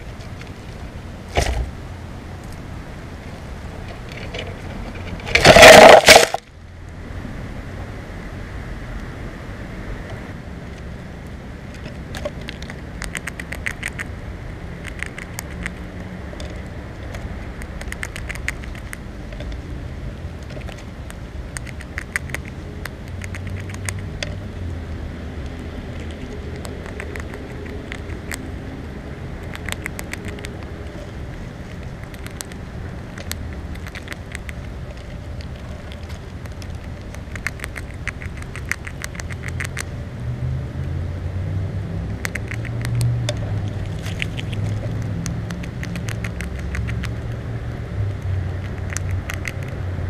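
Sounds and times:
low steady rumble: 0:00.0 - 0:50.0
squirrel clicking: 0:11.7 - 0:14.2, 0:14.8 - 0:19.6, 0:20.3 - 0:24.6, 0:25.4 - 0:28.6, 0:29.4 - 0:39.9, 0:42.1 - 0:47.4, 0:48.1 - 0:49.8.

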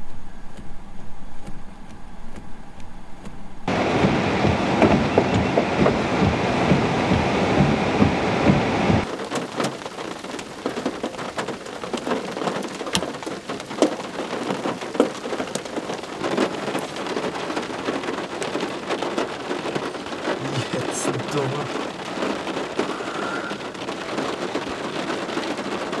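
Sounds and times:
low rumbling noise: 0:00.0 - 0:09.1
raindrops falling: 0:03.2 - 0:26.0.

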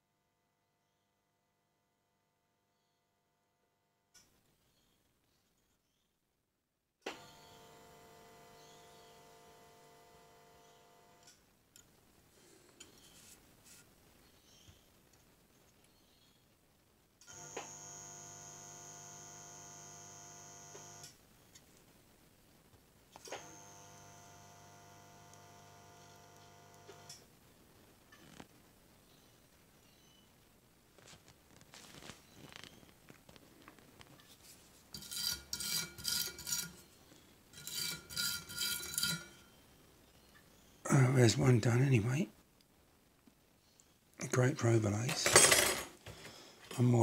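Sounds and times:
stiff brush scrubbing metal: 0:35.0 - 0:36.9.

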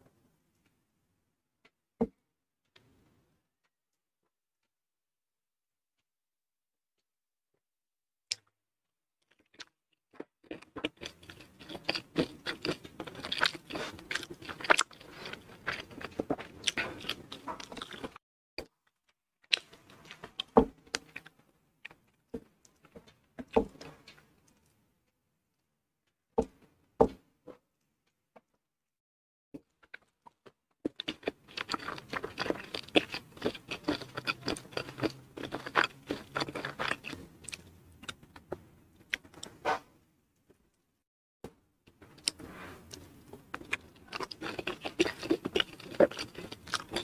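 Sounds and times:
chewing and crunching food: 0:09.2 - 0:24.8, 0:29.6 - 0:39.6, 0:41.9 - 0:47.0.

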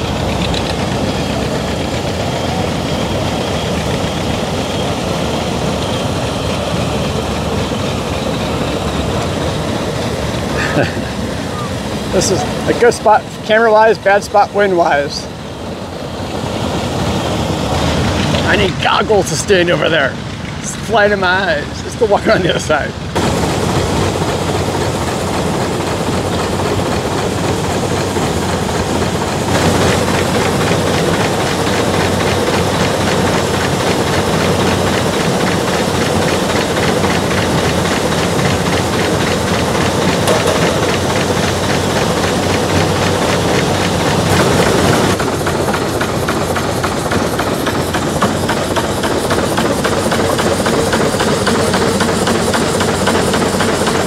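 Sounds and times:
farm machinery clattering: 0:00.0 - 0:15.3, 0:17.0 - 0:54.0.

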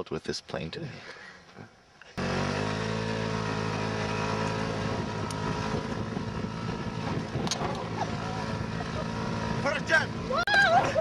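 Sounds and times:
engine running steadily: 0:02.2 - 0:11.0
wind on microphone: 0:04.7 - 0:11.0.

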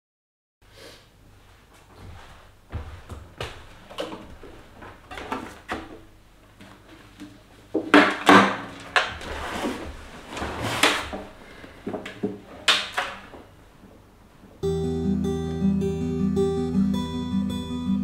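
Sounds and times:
handling scrapes and knocks: 0:03.0 - 0:13.4
fingerpicked acoustic guitar: 0:14.6 - 0:18.0.

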